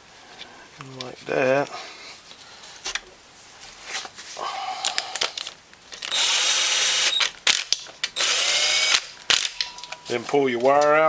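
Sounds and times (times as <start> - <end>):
cordless power tool whirring: 6.0 - 7.6, 8.2 - 9.1
metal parts and tools clicking: 9.3 - 11.0.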